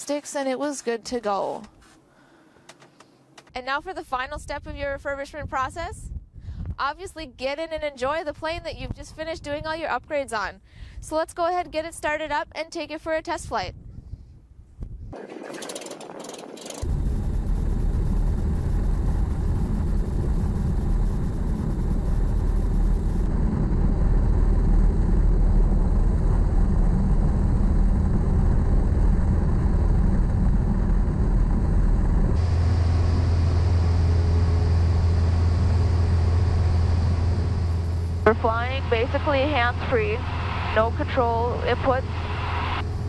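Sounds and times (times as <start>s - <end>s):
aircraft engine and propeller drone: 15.2s - 43.0s.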